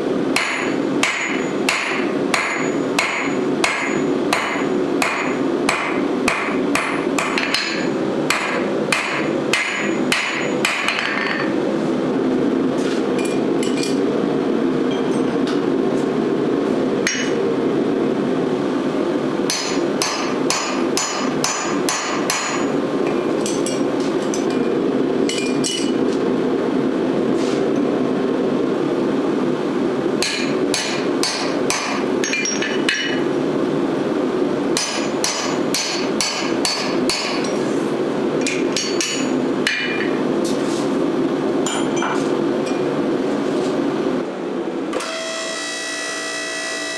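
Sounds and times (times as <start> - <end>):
hammer striking steel on anvil: 0.4 - 11.5, 17.0 - 17.4, 19.5 - 24.7, 25.3 - 26.0, 30.2 - 33.3, 34.8 - 37.6, 38.4 - 40.2.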